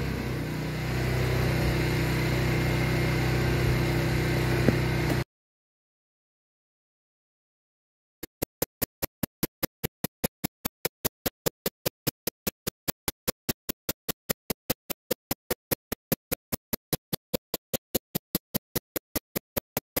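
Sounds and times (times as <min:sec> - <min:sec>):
rapid even clicks: 0:08.3 - 0:20.0.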